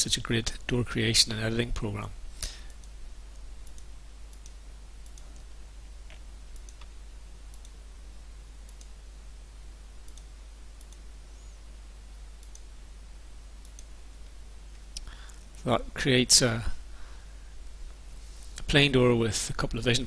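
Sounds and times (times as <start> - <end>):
steady hiss and low hum: 0.0 - 20.0
computer mouse clicking: 2.7 - 5.5, 6.1 - 6.9, 7.5 - 7.8, 8.7 - 9.0, 10.0 - 11.1, 12.4 - 12.7, 13.6 - 15.6.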